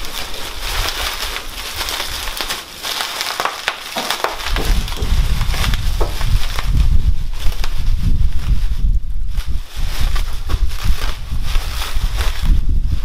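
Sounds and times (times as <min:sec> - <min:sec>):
bubble wrap crinkling: 0:00.0 - 0:13.0
low rumble: 0:04.4 - 0:08.0.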